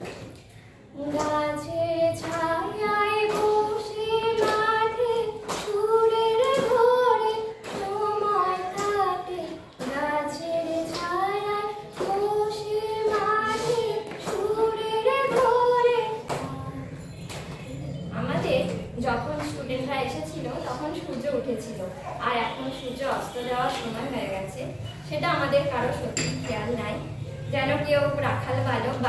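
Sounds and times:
woman singing unaccompanied: 1.0s - 17.0s.

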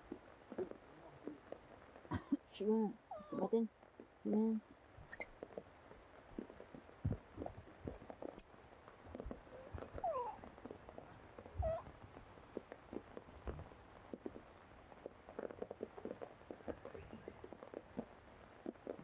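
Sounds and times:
macaque calls: 3.1s - 3.5s, 5.1s - 5.3s, 11.6s - 11.9s.

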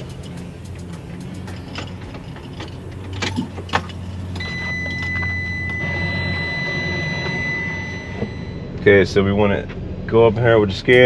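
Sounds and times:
steady low hum: 0.0s - 11.0s
high-pitched tone: 4.4s - 8.8s.

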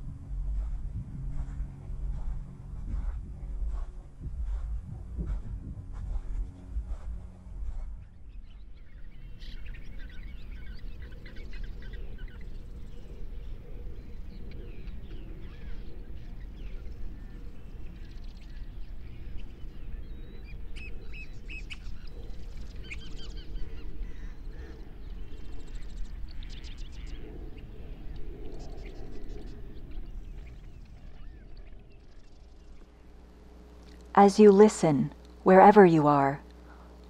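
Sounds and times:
low steady rumble: 0.0s - 37.0s
birds chirping: 8.0s - 35.0s.

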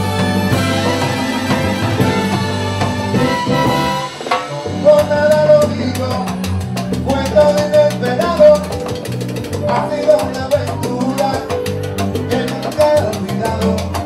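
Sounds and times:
drum kit and percussion beat: 0.0s - 14.0s
salsa band playing: 0.0s - 14.0s
person singing lead melody: 9.6s - 13.9s.

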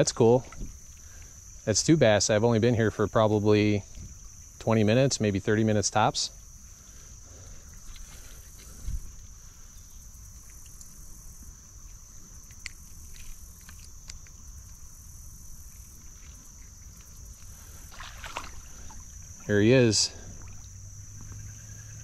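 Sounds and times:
high-pitched insect drone: 6.0s - 22.0s.

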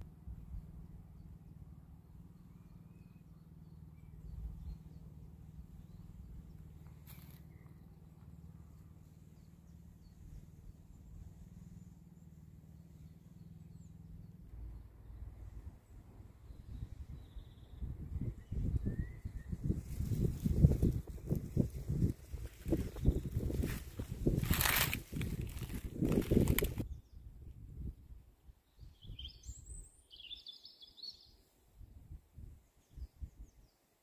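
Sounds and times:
bird chirps: 2.3s - 15.4s, 28.8s - 31.4s
steady low rumble: 4.0s - 26.9s.

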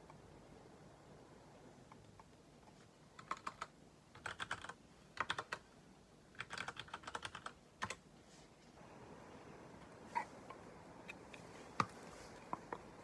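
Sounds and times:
mechanical keyboard typing: 3.2s - 5.6s, 6.3s - 8.0s.

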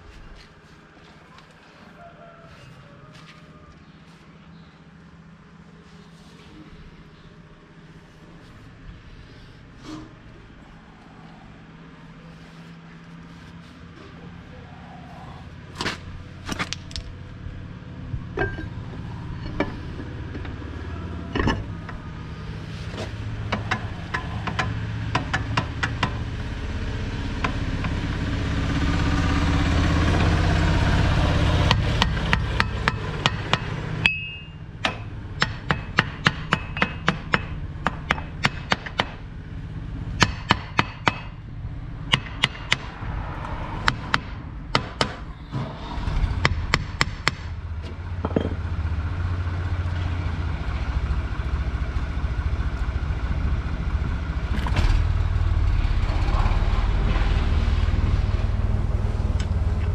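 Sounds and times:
low steady rumble: 2.7s - 59.9s
hammer striking metal: 31.7s - 39.2s, 40.2s - 41.4s, 42.1s - 42.9s.

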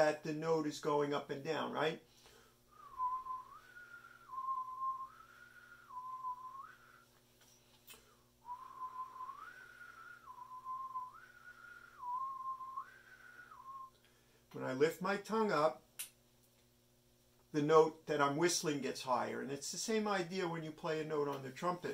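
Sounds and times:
man whistling: 2.7s - 7.2s, 8.4s - 14.0s.

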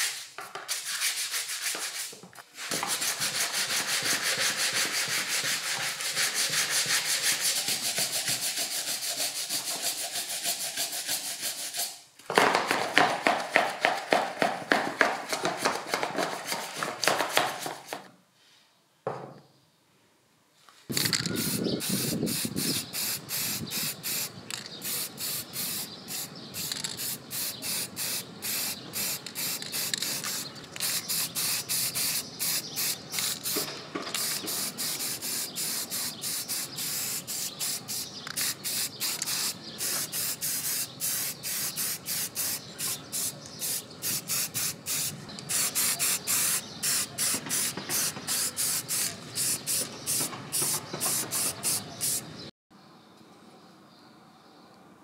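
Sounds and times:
aerosol spray can hissing: 20.9s - 52.2s.

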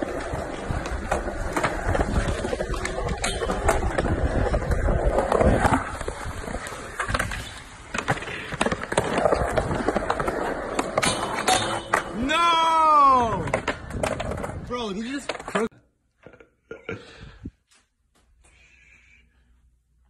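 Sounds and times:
skateboard wheels rolling on concrete: 0.0s - 16.6s
skateboard clacking on metal rail: 11.0s - 12.2s.

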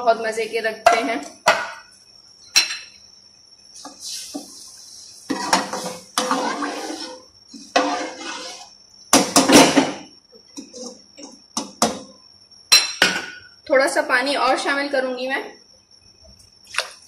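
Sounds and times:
ladle scraping and stirring: 3.9s - 8.8s.

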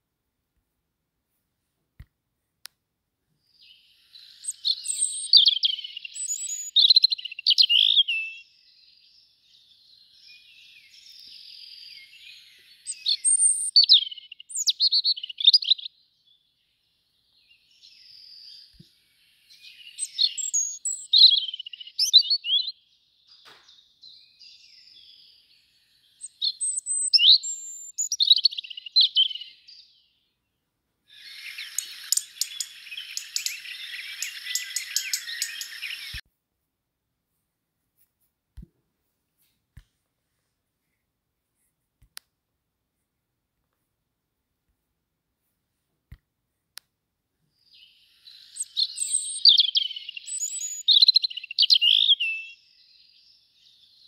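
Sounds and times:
robin singing: 3.4s - 36.2s, 47.6s - 54.0s
crackling hiss: 31.1s - 36.2s.

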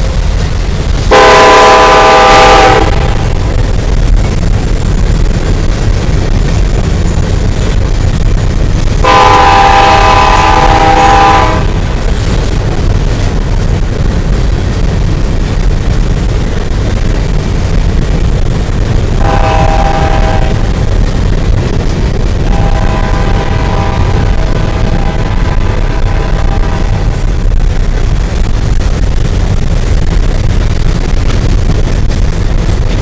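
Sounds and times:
locomotive horn blasts: 1.1s - 3.3s, 9.0s - 11.9s, 19.2s - 20.7s, 22.4s - 27.3s.

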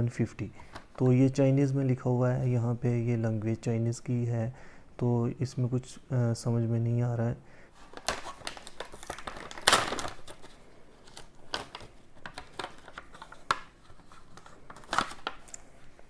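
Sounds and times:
packaging crinkling and rustling: 7.8s - 16.0s.

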